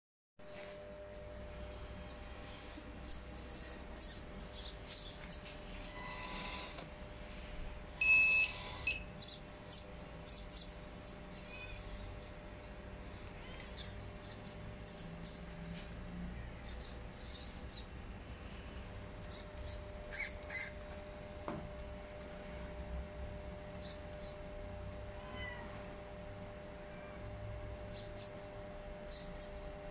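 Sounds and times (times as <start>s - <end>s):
faint steady hum: 0.4s - 29.9s
servos chirping: 2.0s - 6.9s, 7.8s - 18.0s, 19.2s - 20.8s, 23.7s - 24.5s, 27.6s - 29.9s
transmitter beep: 8.0s - 9.1s.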